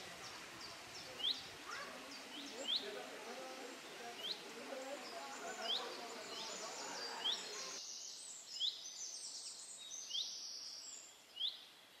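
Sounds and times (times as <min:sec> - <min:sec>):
murmur of voices: 0:00.0 - 0:07.8
birds trilling song: 0:00.0 - 0:11.6.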